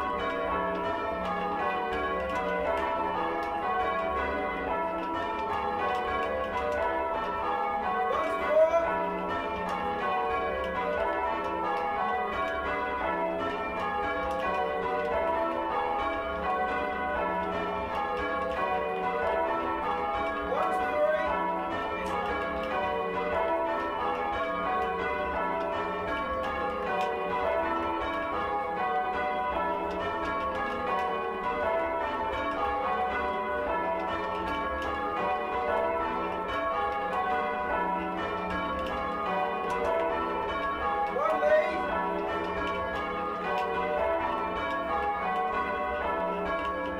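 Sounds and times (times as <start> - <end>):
church bells ringing: 0.0 - 46.9.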